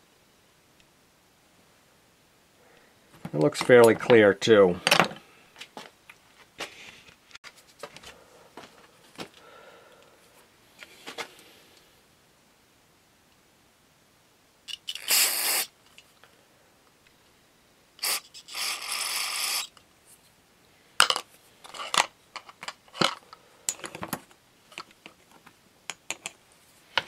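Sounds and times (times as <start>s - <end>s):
small metal parts clinking: 14.7s - 15.2s, 21.0s - 24.9s
aerosol spray hissing: 14.9s - 15.8s, 18.0s - 19.7s.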